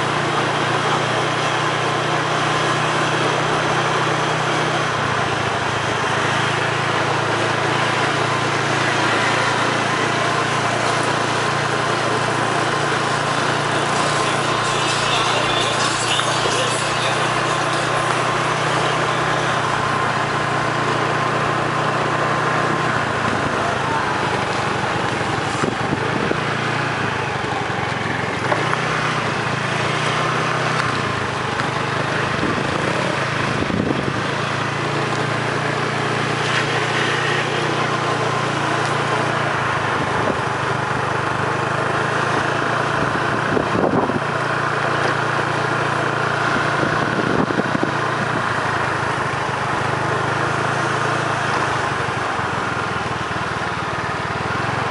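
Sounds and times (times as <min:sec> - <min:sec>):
engine running steadily: 0:00.0 - 0:54.9.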